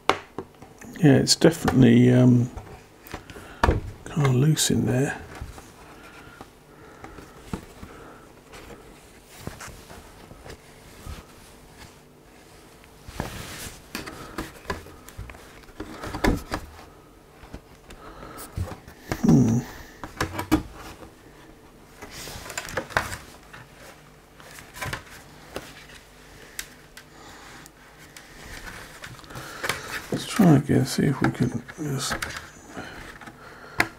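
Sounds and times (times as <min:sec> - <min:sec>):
person grunting: 0:19.0 - 0:20.0.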